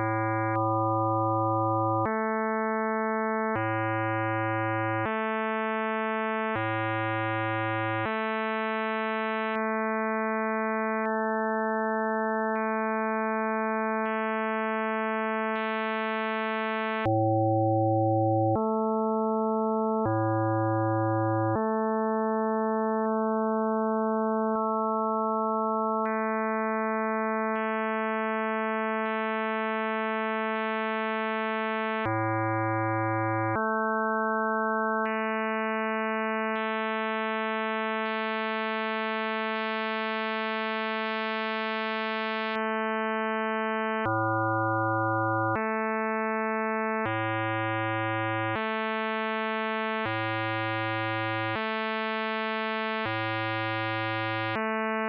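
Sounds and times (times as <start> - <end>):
synthesized sine tone chords: 0.0 - 2.2, 17.0 - 18.8, 20.0 - 21.7, 44.0 - 45.6, 47.1 - 48.7, 50.0 - 51.6, 53.0 - 54.6.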